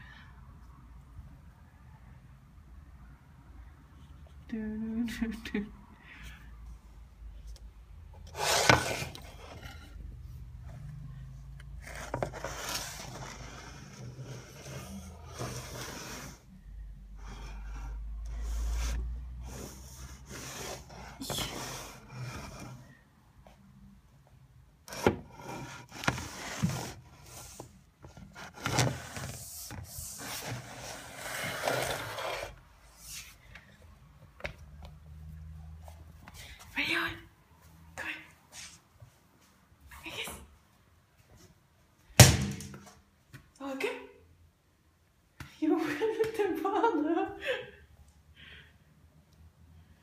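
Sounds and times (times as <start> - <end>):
scrape against the floor: 8.2 - 10.1, 11.7 - 16.5, 17.2 - 23.0, 24.9 - 33.6, 38.5 - 38.8.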